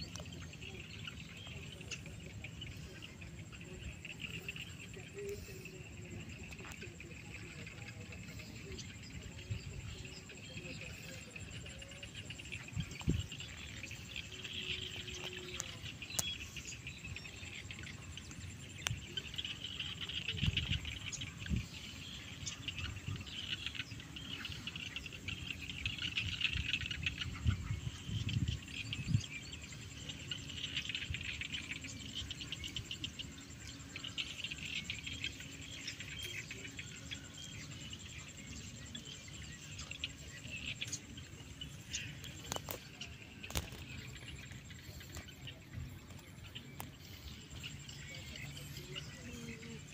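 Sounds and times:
wind rumbling on microphone: 0.0s - 34.0s
insects trilling: 0.0s - 49.9s.

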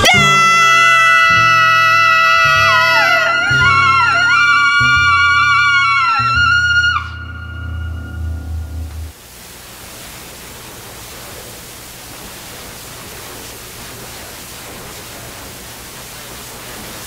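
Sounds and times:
steady hiss: 7.6s - 17.0s.

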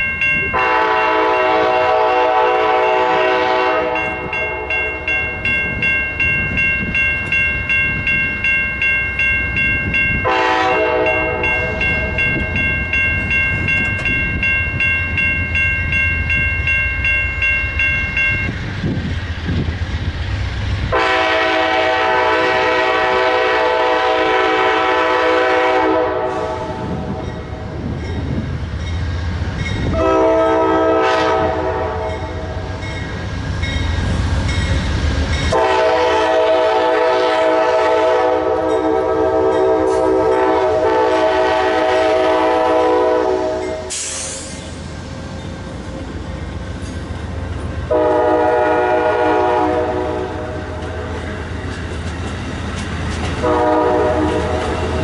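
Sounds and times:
train rumbling: 0.0s - 55.0s
locomotive horn blasts: 0.5s - 4.7s, 10.2s - 12.2s, 20.9s - 27.0s, 29.9s - 32.5s, 35.5s - 44.0s, 47.9s - 50.7s, 53.4s - 54.8s.

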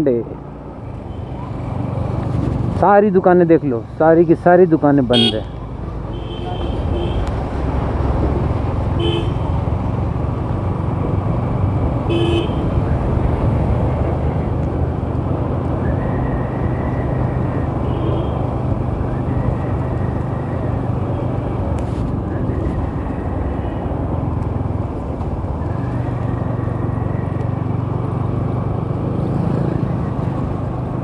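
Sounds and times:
vehicle horn toots: 5.1s - 5.5s, 6.1s - 7.2s, 9.0s - 9.5s, 12.1s - 12.6s.

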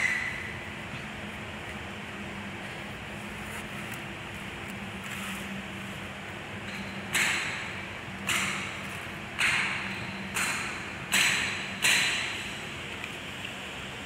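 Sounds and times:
sharp knocks: 6.7s - 8.8s, 9.4s - 12.5s.

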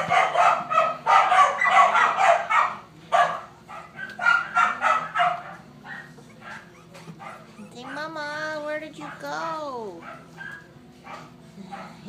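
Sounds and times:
puppies squealing and whining: 0.0s - 8.4s.

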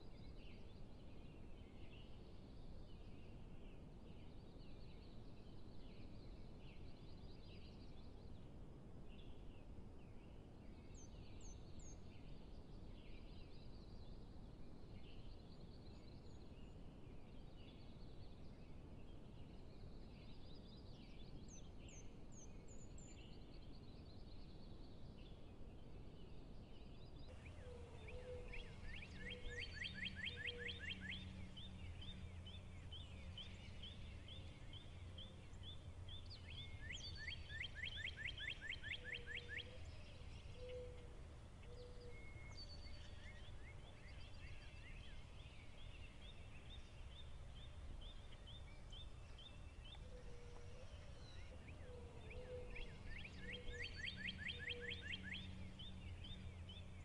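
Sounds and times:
bird chirps: 26.8s - 57.0s
low steady rumble: 27.3s - 38.1s
birds trilling: 27.3s - 57.0s.

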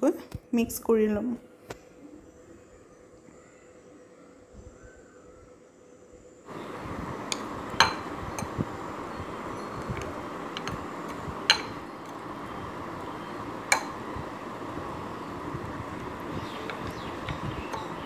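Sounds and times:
steady background noise: 0.0s - 18.0s
spoon clinking against a bowl: 11.5s - 11.8s.

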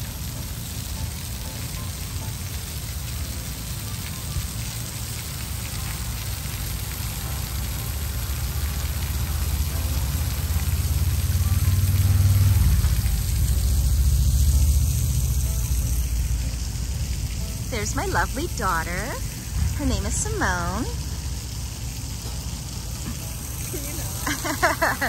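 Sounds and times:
mist spray hissing: 10.1s - 25.0s
low rumble: 11.0s - 24.2s.

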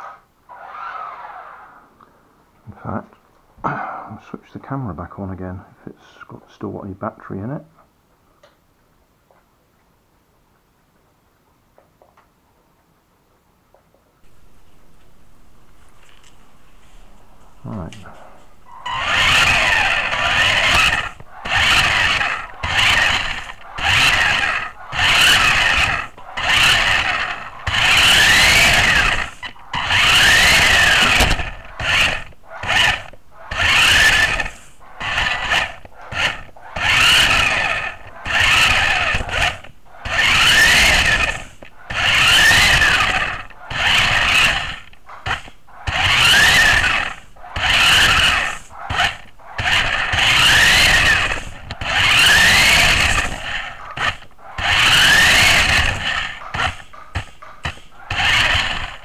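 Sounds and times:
toy car electric motor whining: 14.2s - 59.0s.

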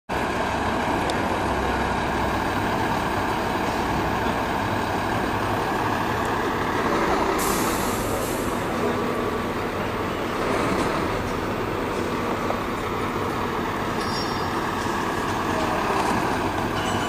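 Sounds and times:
truck diesel engine running: 0.1s - 17.0s
air release hiss: 7.4s - 8.7s.

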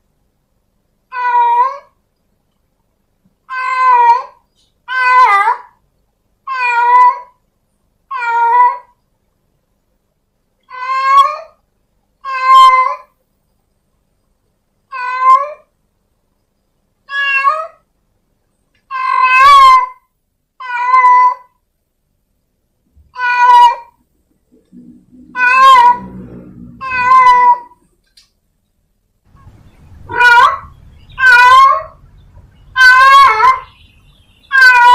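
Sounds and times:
cat meowing: 1.1s - 2.0s, 3.5s - 5.7s, 6.5s - 7.4s, 8.1s - 8.9s, 10.7s - 11.6s, 12.2s - 13.1s, 14.9s - 15.7s, 17.1s - 17.8s, 18.9s - 20.0s, 20.6s - 21.6s, 23.1s - 24.0s, 25.2s - 27.9s, 30.0s - 32.0s, 32.7s - 33.7s, 34.5s - 34.9s
faint low rumble: 24.0s - 32.8s.

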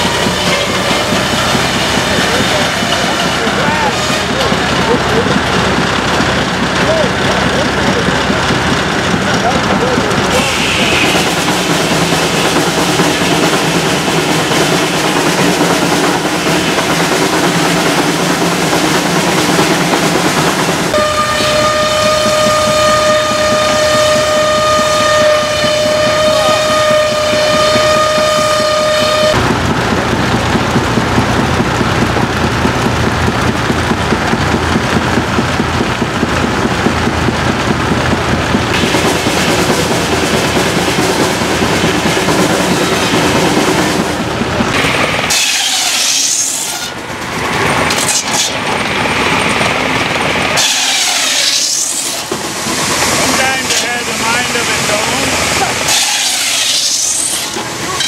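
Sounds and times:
steam whistle blowing: 10.3s - 11.4s, 20.9s - 29.4s, 50.6s - 52.3s, 55.9s - 57.5s.

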